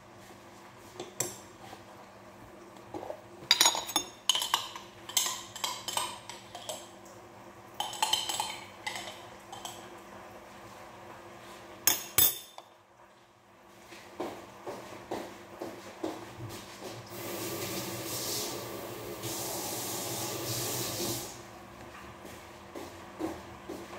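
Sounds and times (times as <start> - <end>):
glass jar and utensils clinking: 3.5 - 6.8.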